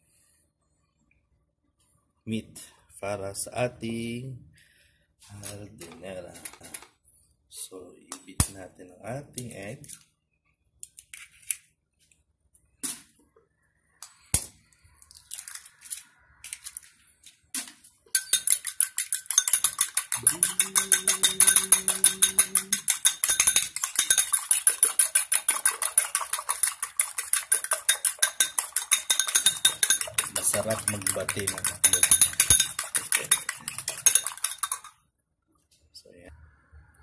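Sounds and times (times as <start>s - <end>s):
fork beating eggs in a bowl: 18.1s - 35.0s.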